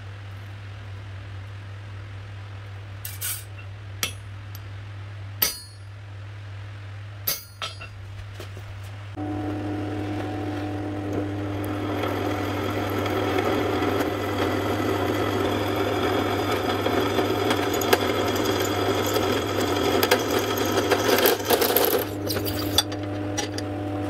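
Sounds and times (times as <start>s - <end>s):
drill press motor hum: 9.2s - 24.0s
drill bit grinding metal: 10.8s - 23.6s.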